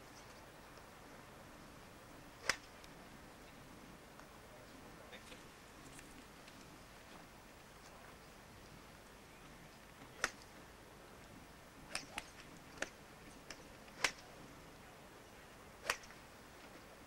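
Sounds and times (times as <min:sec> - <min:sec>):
low tape hiss: 0:00.0 - 0:17.0
golf clubs striking balls: 0:02.3 - 0:03.0, 0:10.0 - 0:10.5, 0:11.9 - 0:14.4, 0:15.8 - 0:16.2.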